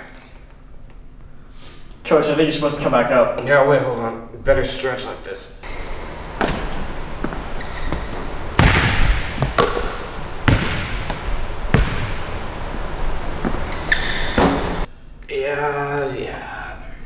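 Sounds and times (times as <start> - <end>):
basketball bouncing on gym floor: 5.7 - 14.8.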